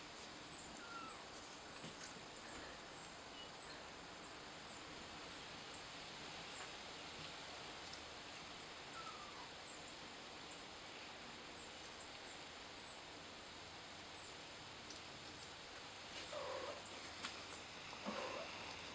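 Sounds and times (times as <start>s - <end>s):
steady hiss: 0.0s - 18.9s
faint high steady tone: 3.3s - 4.0s.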